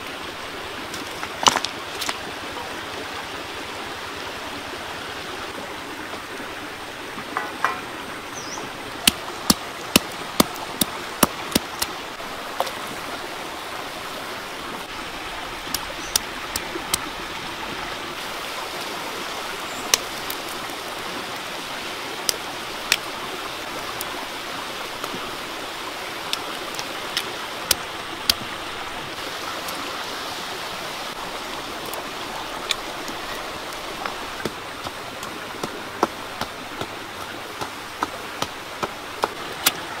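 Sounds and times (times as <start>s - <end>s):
stream rushing over rocks: 0.0s - 40.0s
sharp clicks and pops: 15.6s - 17.1s.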